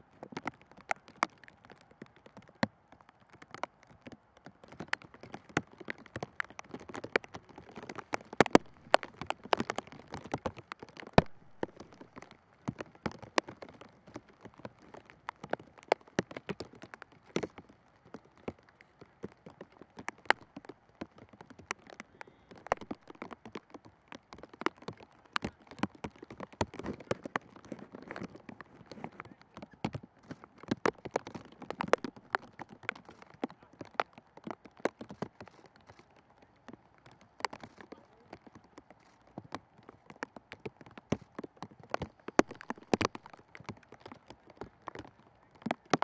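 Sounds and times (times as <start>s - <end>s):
footballs being kicked: 4.7s - 13.7s.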